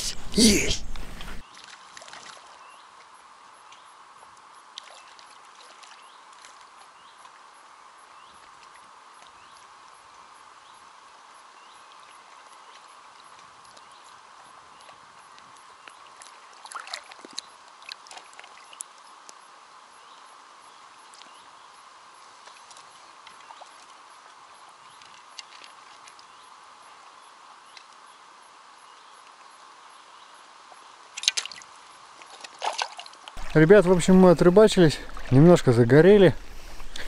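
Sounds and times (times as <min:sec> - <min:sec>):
water lapping: 0:00.0 - 0:02.6, 0:12.0 - 0:18.8, 0:31.2 - 0:37.0
fish splashing at surface: 0:32.3 - 0:37.0.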